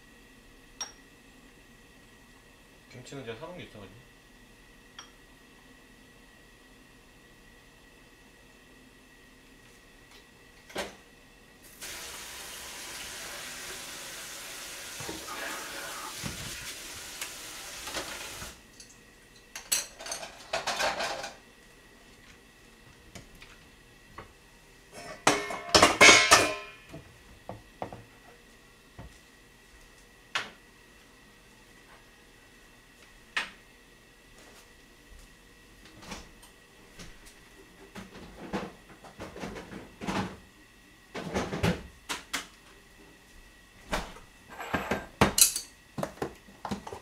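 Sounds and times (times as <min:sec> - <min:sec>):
kitchen tap running: 0:11.7 - 0:18.6.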